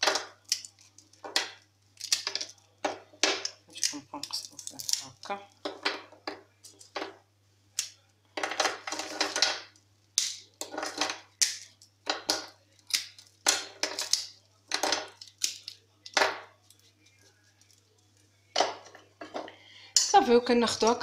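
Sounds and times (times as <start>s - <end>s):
brittle snapping and crackling: 0.0s - 7.1s, 7.8s - 19.0s
paper crinkling: 14.5s - 18.5s.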